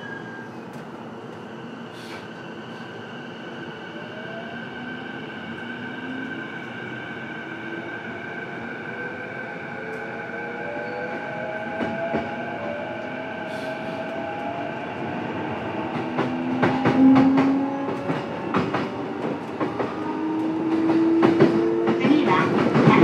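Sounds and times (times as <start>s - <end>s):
train wheels rumbling: 9.8s - 23.0s.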